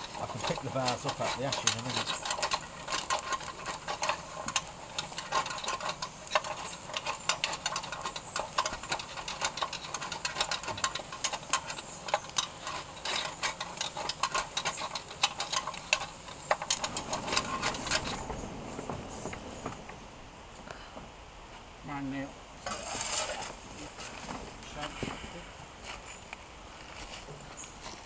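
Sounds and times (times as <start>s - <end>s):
ashes rattling through grate: 0.0s - 20.5s
metallic clinking and scraping: 0.0s - 20.7s, 22.6s - 25.0s
faint steam hiss: 0.0s - 28.0s.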